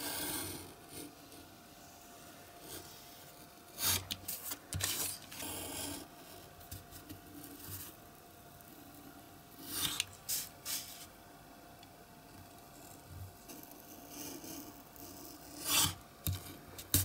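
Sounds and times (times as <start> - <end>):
ruler and paper handling: 3.8 - 5.5, 9.7 - 11.1
craft knife scraping through card: 3.8 - 5.9, 15.2 - 16.0.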